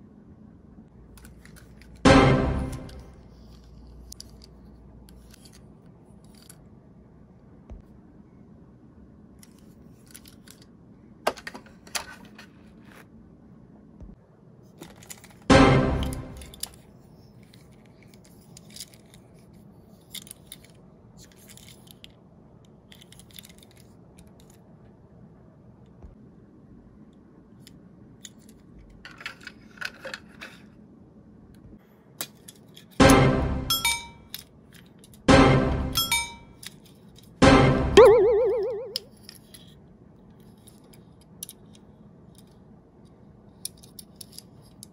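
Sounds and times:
toy car clicking and scraping: 1.2 - 2.0, 3.4 - 6.6, 16.5 - 24.6, 27.6 - 30.7, 39.1 - 42.6, 43.6 - 44.9
ringing musical sound effect: 35.3 - 36.5, 37.4 - 39.0
loud pitched sound: 37.4 - 39.1
toy car clicking into plastic: 43.6 - 44.9.

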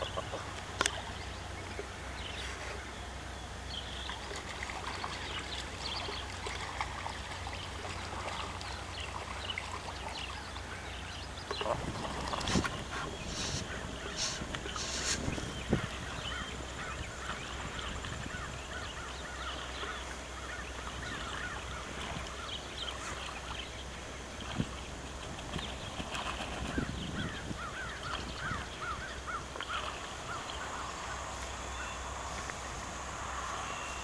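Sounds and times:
waterfowl calling: 0.0 - 1.8, 8.2 - 23.6, 26.2 - 32.2
wind rumble on microphone: 11.6 - 19.1, 24.2 - 29.3.

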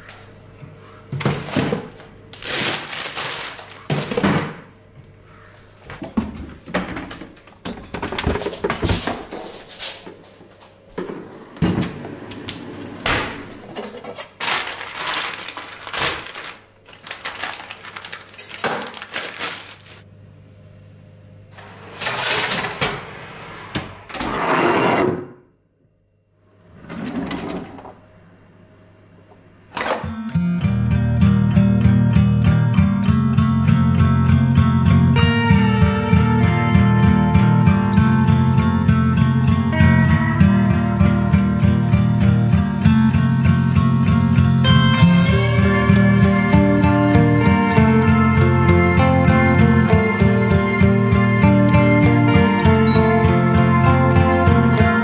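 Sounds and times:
freezer drawer rummaged: 1.2 - 4.7, 11.0 - 20.0
plastic bag rustling: 1.3 - 4.3, 13.4 - 20.0
kitchen drawer opening: 11.0 - 15.2, 21.6 - 25.4, 26.7 - 28.0.

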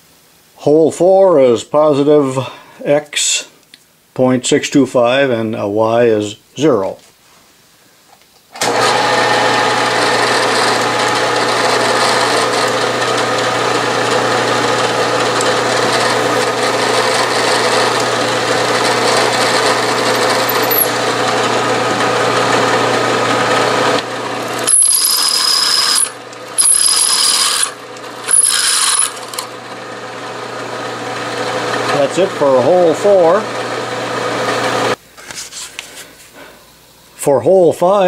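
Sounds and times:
milling machine spindle running: 8.6 - 35.0
drill bit squealing in steel: 19.0 - 21.0, 24.6 - 29.4.

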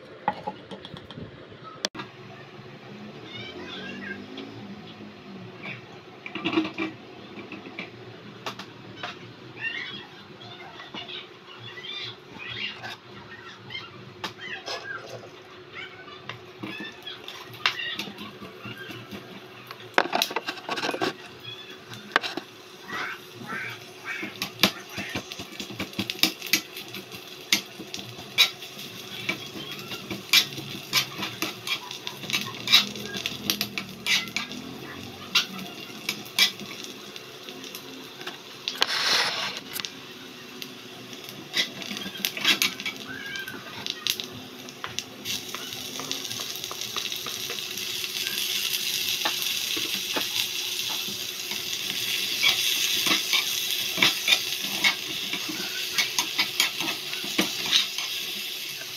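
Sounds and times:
onions sizzling: 3.0 - 58.9
metal spatula scraping wok: 33.7 - 34.6, 38.8 - 39.8.

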